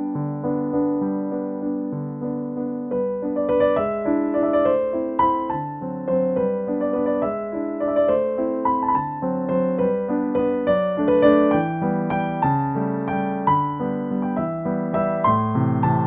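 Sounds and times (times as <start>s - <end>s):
slow piano melody: 0.0s - 16.0s.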